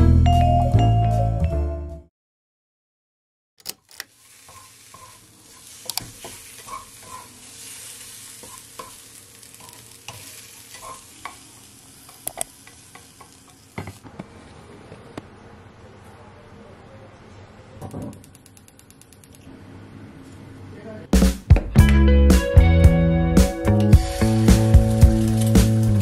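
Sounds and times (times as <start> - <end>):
spatula scraping a pan: 4.1 - 13.6
mushrooms sizzling in a frying pan: 4.1 - 14.0, 24.0 - 26.0.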